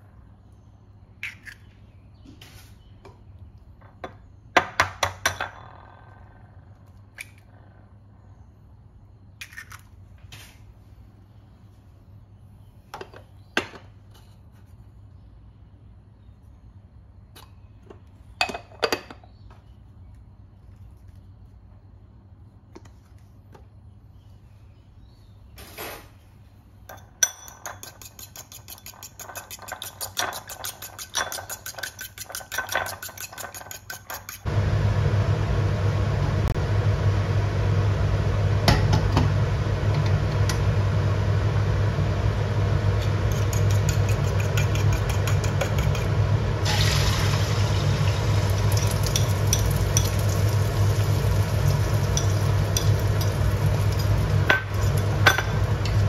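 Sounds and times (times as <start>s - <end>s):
gas cooktop roar: 25.5s - 56.0s
oil sizzling in wok: 41.4s - 56.0s
utensil clicking against bowl: 43.3s - 46.1s.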